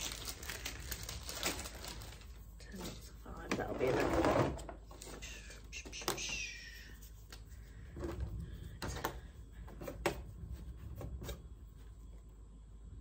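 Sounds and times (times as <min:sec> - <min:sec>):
low steady rumble: 0:06.5 - 0:13.0.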